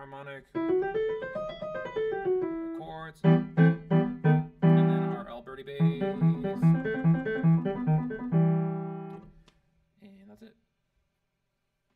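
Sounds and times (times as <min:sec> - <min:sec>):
digital piano playing: 0:00.6 - 0:09.2.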